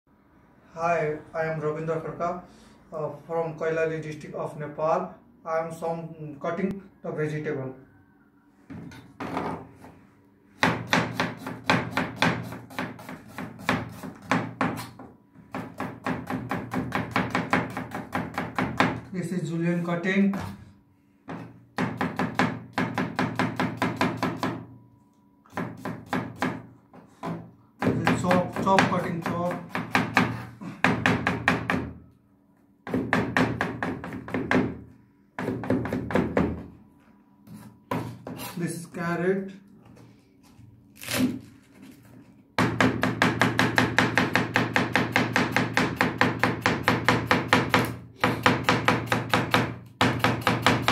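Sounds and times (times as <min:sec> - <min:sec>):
knife chopping on plastic board: 0:10.6 - 0:19.0, 0:42.6 - 0:50.9.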